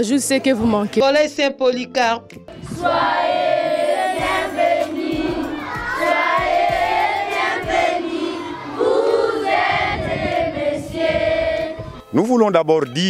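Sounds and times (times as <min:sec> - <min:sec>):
children singing in unison: 0:02.5 - 0:12.0.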